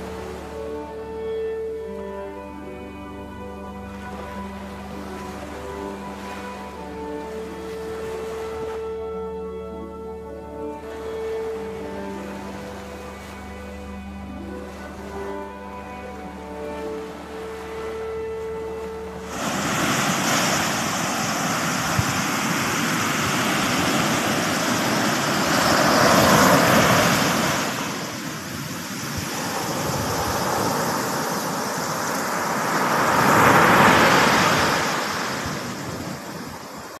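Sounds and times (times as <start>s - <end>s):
ocean surf breaking on beach: 4.1s - 9.2s, 14.7s - 37.0s.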